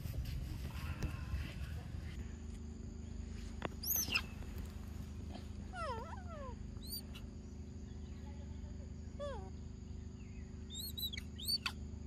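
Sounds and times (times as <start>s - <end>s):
monkey falling-and-rising calls: 3.8s - 4.3s
monkey squealing: 3.8s - 4.3s, 5.7s - 7.2s, 10.7s - 11.8s
monkey high chirp: 3.8s - 4.4s, 5.7s - 7.3s, 10.7s - 11.8s.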